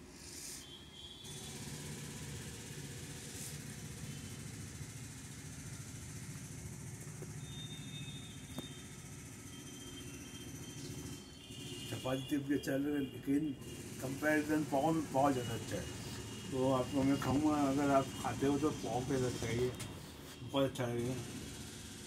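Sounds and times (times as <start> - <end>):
low mechanical hum: 0.0 - 22.0.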